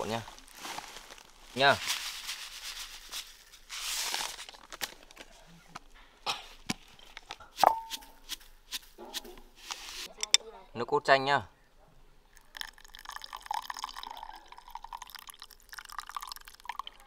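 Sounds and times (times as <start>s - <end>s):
spoon striking a bowl: 7.6s - 8.2s.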